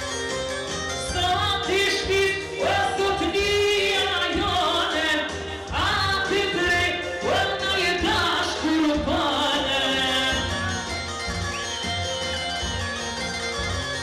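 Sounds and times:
instrumental accompaniment: 0:00.0 - 0:14.0
man singing into microphone: 0:01.1 - 0:10.7.

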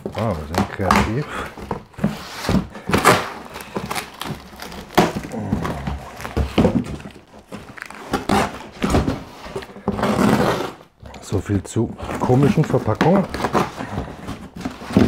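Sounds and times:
box knocking on wooden floor: 0:00.0 - 0:07.6
cardboard scraping and tearing: 0:00.0 - 0:15.0.

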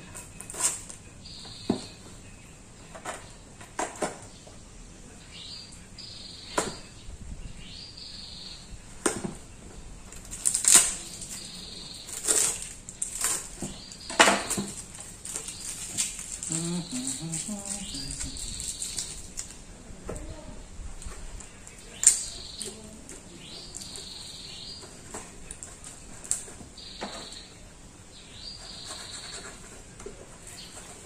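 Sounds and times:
packaging rustling and scraping: 0:10.1 - 0:19.6.

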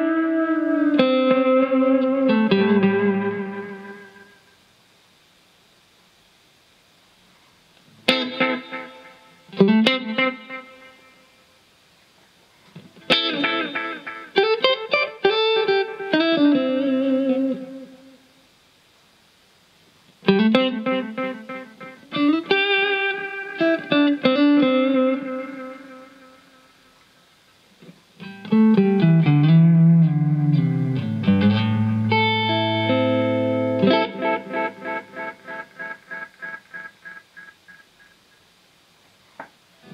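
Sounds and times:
electric guitar with reverb: 0:00.0 - 0:04.6, 0:08.0 - 0:11.5, 0:12.8 - 0:18.3, 0:20.2 - 0:27.0, 0:27.8 - 0:38.3.

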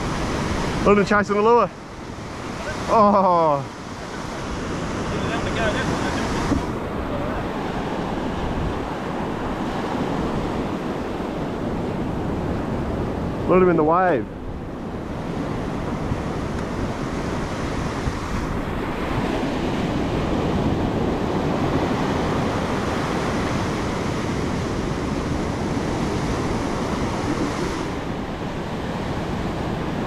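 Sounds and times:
ocean surf washing on sand: 0:00.0 - 0:30.0.

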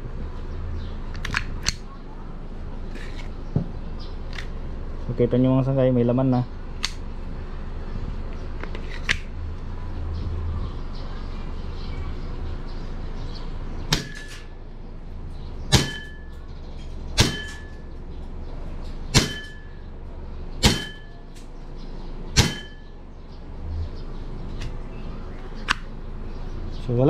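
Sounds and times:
airsoft pistol shots: 0:13.9 - 0:14.4, 0:15.7 - 0:16.2, 0:17.2 - 0:17.7, 0:19.1 - 0:19.6, 0:20.6 - 0:21.1, 0:22.4 - 0:22.8.

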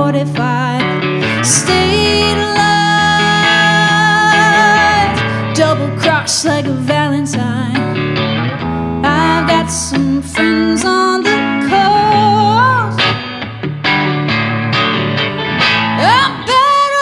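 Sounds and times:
woman singing: 0:00.0 - 0:08.0, 0:09.0 - 0:13.2, 0:16.0 - 0:17.0
electric guitar: 0:00.0 - 0:17.0.

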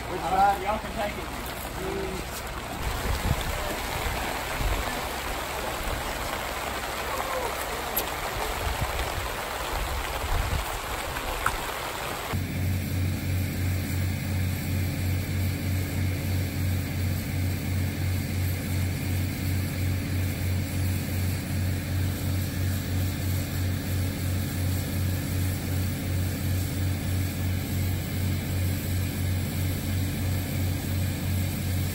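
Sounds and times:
water jet pouring into creek: 0:00.0 - 0:12.4
flood pump engine droning: 0:00.0 - 0:31.9.

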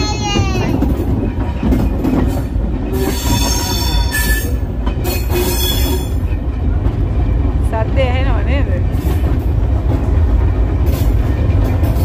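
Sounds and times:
railway carriage rumbling on track: 0:00.0 - 0:12.0
high-pitched wheel squeal: 0:03.0 - 0:06.2.

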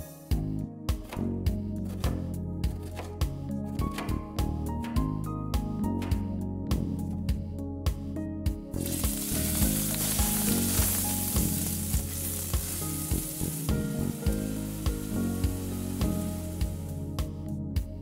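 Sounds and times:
onion sizzling in hot oil: 0:08.8 - 0:17.0.

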